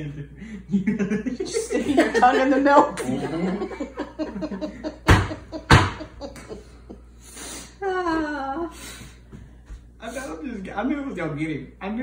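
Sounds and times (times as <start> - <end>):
man's stifled laughter: 3.2 - 7.0.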